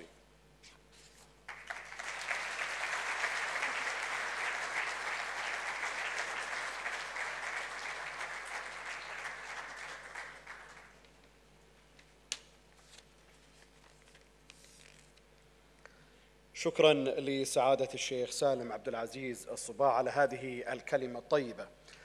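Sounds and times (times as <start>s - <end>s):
audience applauding: 1.5s - 11.0s.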